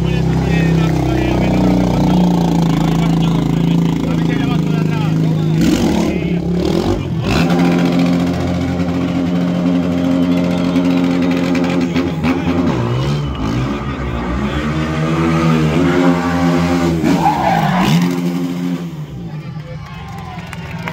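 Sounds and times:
quad engine revving: 0.0s - 19.1s.

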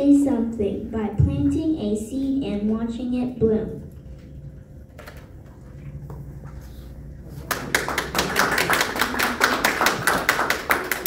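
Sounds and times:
audience clapping: 7.4s - 11.0s.

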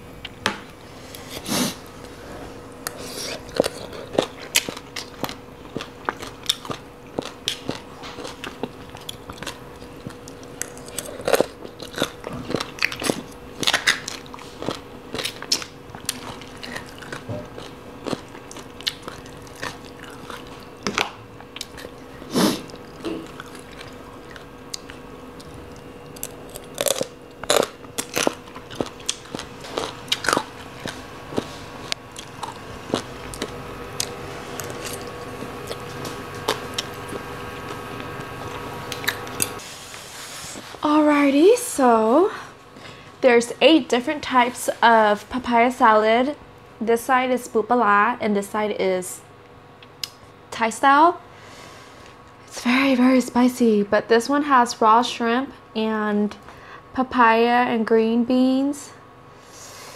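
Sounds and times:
faint steady hum: 0.0s - 59.9s
chewing crunchy food: 1.1s - 39.6s.

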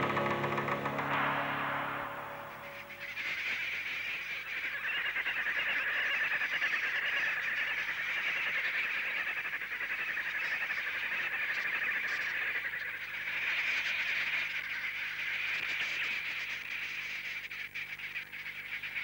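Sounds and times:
music: 0.0s - 3.8s
flock of birds calling: 0.0s - 19.0s.

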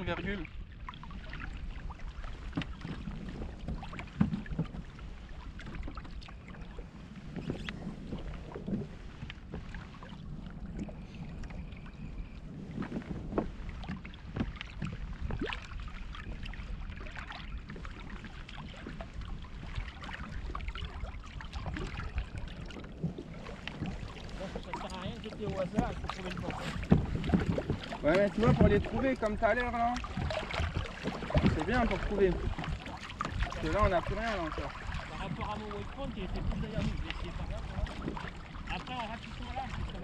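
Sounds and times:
water lapping against hull: 0.0s - 40.0s
wind buffeting microphone: 0.0s - 40.0s
gear knocking against boat: 24.7s - 35.6s.

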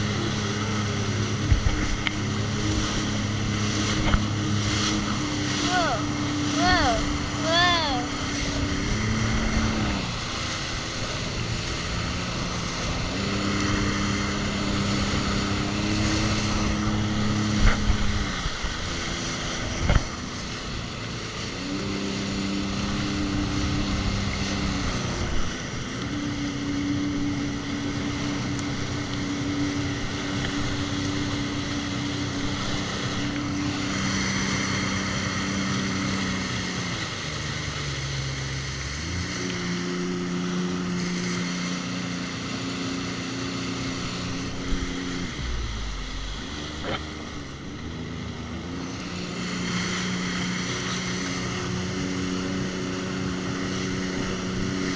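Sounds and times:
jet ski engine running: 0.0s - 54.9s.

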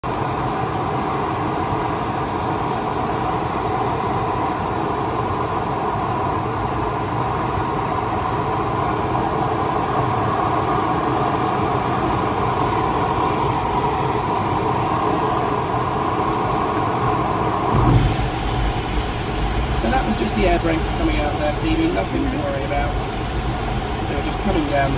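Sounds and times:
air rushing over glider canopy: 0.0s - 24.9s
deep rumble of air brakes: 17.7s - 24.1s.

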